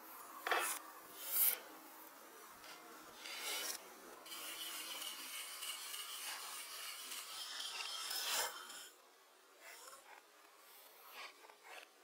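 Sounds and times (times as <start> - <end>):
knife scraping a wooden log: 3.2 - 8.9.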